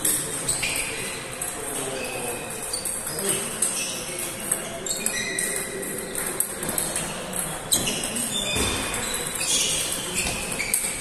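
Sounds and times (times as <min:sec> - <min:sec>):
chatter in large hall: 0:00.0 - 0:11.0.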